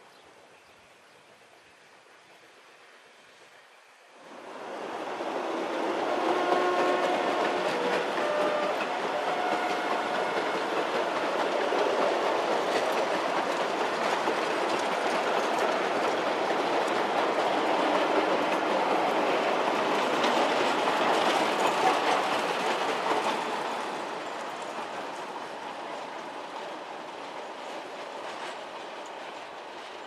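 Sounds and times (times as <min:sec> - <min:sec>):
wagon wheels running over rails: 0:04.6 - 0:25.3.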